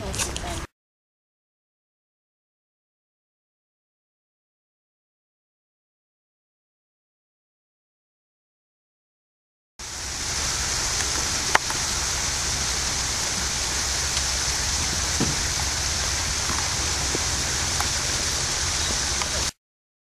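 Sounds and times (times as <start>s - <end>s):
low hum: 9.8s - 19.5s
open-air hiss: 9.8s - 19.6s.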